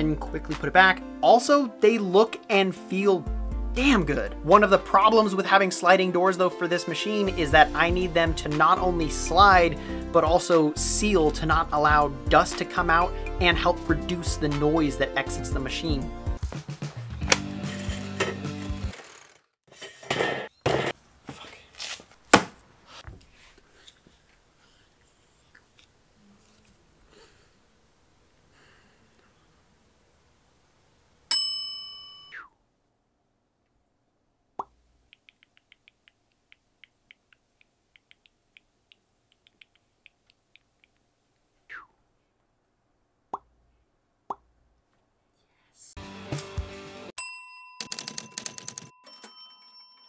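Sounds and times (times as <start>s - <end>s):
background music: 0.0s - 19.0s, 45.9s - 47.2s
reciprocating saw scraping metal: 17.5s - 20.5s.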